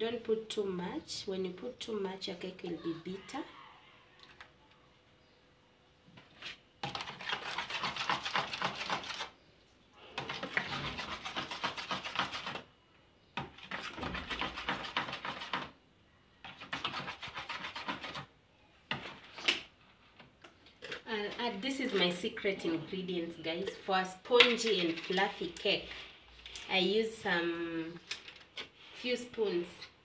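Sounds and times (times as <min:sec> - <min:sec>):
spoon beating batter in bowl: 0:06.4 - 0:09.4, 0:10.2 - 0:12.7, 0:13.4 - 0:15.8, 0:16.4 - 0:18.3.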